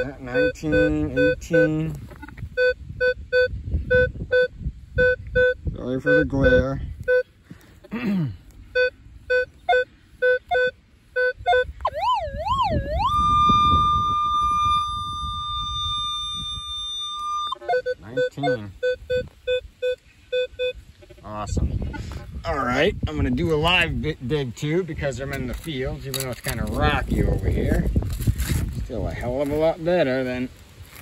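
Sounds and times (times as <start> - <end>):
metal detector wavering tone: 0.0 - 7.3, 8.7 - 21.6
metal detector short low beeps: 0.0 - 7.4, 8.7 - 21.7.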